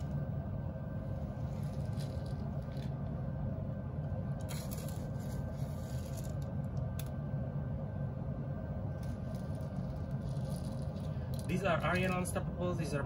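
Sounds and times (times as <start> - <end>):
steady low hum: 0.0 - 13.0
beads rattling as poured: 1.6 - 2.9, 4.5 - 6.4, 9.0 - 11.9.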